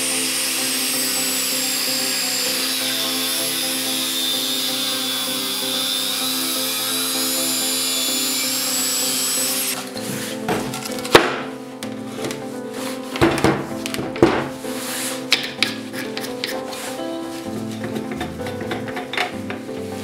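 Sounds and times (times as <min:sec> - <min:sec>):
angle grinder cutting steel: 0:00.0 - 0:11.0
background music: 0:00.0 - 0:20.0.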